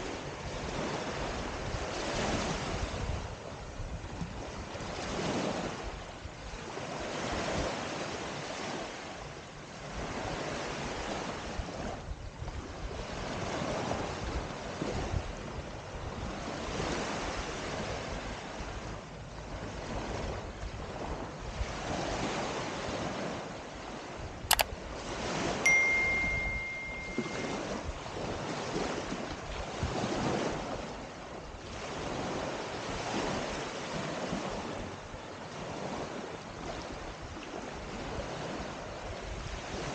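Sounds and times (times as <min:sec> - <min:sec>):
waves breaking on beach: 0:00.0 - 0:39.9
wind: 0:00.0 - 0:39.9
sharp click: 0:24.5 - 0:24.7, 0:25.7 - 0:27.5
high steady beep: 0:25.7 - 0:27.8.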